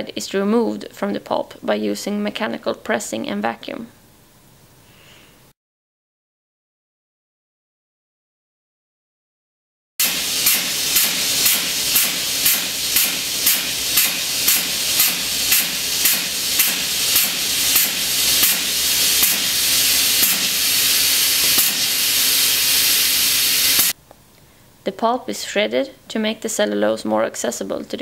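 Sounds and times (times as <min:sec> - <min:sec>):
pulsing vacuum hiss: 0:10.0 - 0:24.0.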